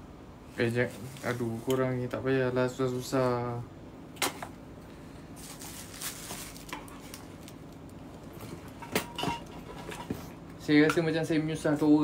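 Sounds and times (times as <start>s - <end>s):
packaging rustling and scraping: 5.4s - 10.4s.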